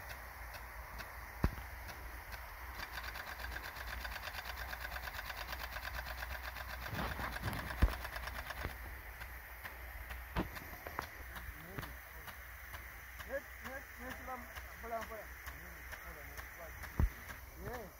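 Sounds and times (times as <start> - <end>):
rain gun sprinkler clattering: 0.0 - 17.9.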